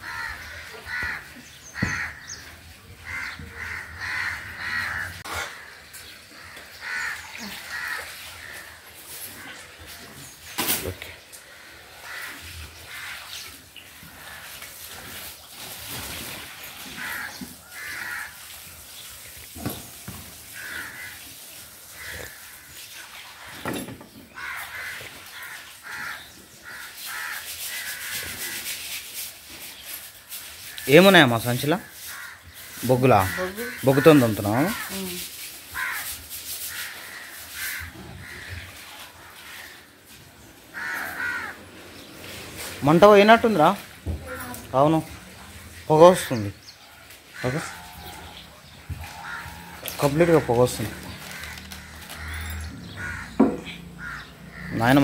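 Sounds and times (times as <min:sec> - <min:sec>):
crow cawing: 0:00.0 - 0:02.4, 0:03.0 - 0:08.8, 0:11.4 - 0:13.2, 0:17.0 - 0:18.4, 0:20.6 - 0:21.2, 0:21.9 - 0:22.8, 0:24.4 - 0:28.2, 0:31.8 - 0:35.0, 0:35.8 - 0:39.9, 0:40.7 - 0:42.1, 0:47.3 - 0:48.4, 0:49.0 - 0:55.0
firewood knock: 0:01.8 - 0:02.1, 0:53.4 - 0:53.7.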